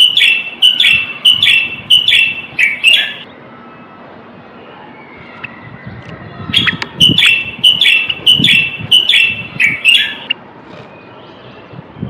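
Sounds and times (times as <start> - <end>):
bulbul singing chattering notes: 0.0 - 3.3, 6.6 - 10.4.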